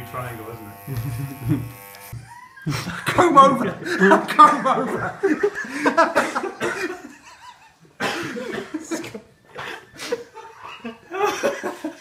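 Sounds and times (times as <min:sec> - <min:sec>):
people talking: 0:00.0 - 0:01.3, 0:03.0 - 0:05.2
people laughing: 0:00.9 - 0:12.0.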